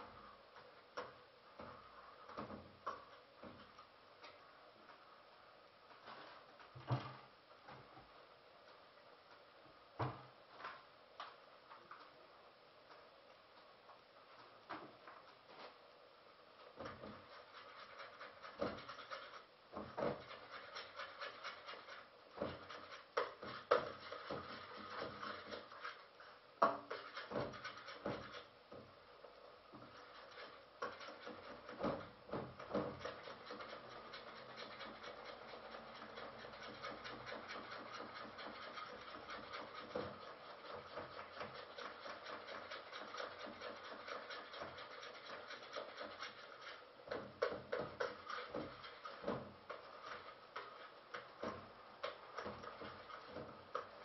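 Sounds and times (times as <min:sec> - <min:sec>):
utensil scraping a pan: 0:16.8 - 0:28.6, 0:29.8 - 0:54.0.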